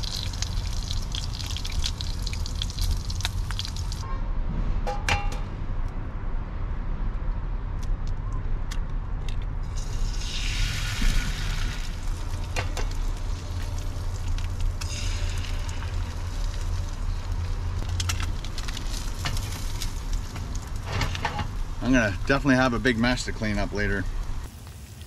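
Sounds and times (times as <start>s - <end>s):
bacon sizzling in a pan: 0.0s - 4.0s, 9.8s - 20.5s
steady low hum: 9.6s - 24.5s.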